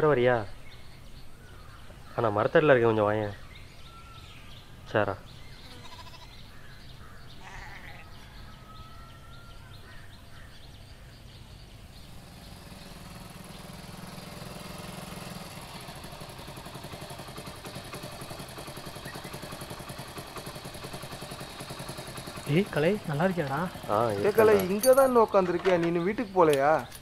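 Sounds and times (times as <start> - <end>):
motorcycle engine approaching: 0.0 - 27.0.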